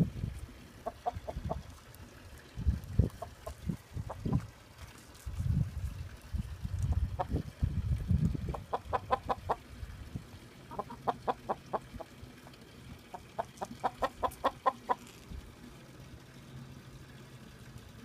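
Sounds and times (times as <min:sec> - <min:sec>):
chickens clucking: 0:00.8 - 0:01.8, 0:03.0 - 0:04.5, 0:08.5 - 0:09.7, 0:10.7 - 0:12.1, 0:13.1 - 0:15.1.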